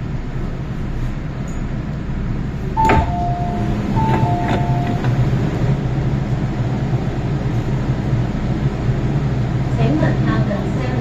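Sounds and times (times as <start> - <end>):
train low hum: 0.0 - 11.0
train doors clunking: 2.6 - 6.0
two-note door chime: 2.8 - 5.3.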